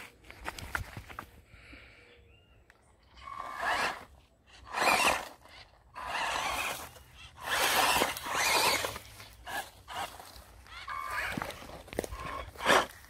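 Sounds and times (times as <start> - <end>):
electric toy car motor whining: 3.1 - 13.0.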